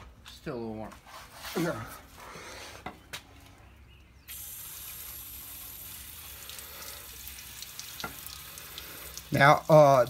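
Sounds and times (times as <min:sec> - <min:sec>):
hose nozzle spraying: 0:04.3 - 0:09.4.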